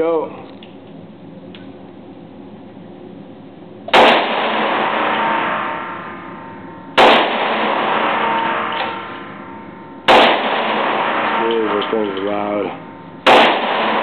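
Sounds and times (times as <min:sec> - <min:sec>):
pistol shots echoing indoors: 0:03.9 - 0:12.2, 0:13.2 - 0:14.0.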